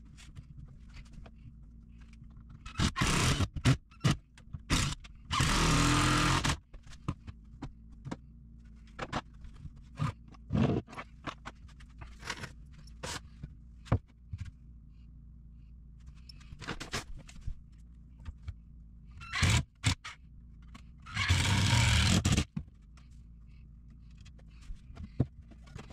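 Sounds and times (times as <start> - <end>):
cordless drill driving screw: 19.3 - 20.0, 21.1 - 22.4.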